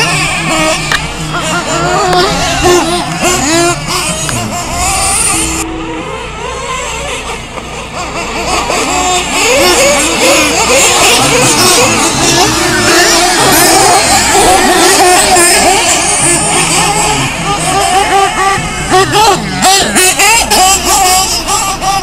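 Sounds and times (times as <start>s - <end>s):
rc truck engines revving: 0.0s - 22.0s.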